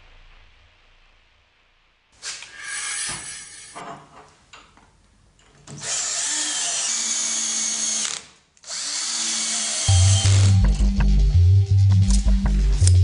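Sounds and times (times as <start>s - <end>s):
cordless drill motor whining: 5.7s - 10.6s.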